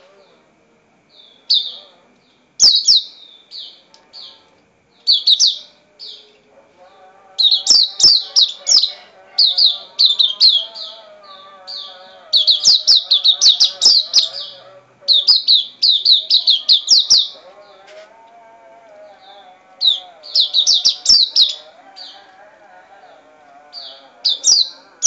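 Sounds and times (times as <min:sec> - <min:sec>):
white-eye bird chirping: 0:01.2 - 0:01.9, 0:02.6 - 0:04.4, 0:05.0 - 0:06.3, 0:07.4 - 0:17.4, 0:19.8 - 0:22.2, 0:23.8 - 0:25.0.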